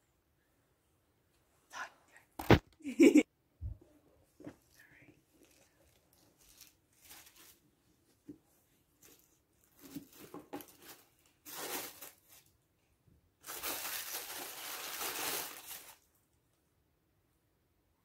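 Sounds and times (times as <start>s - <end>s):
wrapping paper crinkling and tearing: 5.4s - 7.6s, 9.0s - 12.5s, 13.4s - 16.1s.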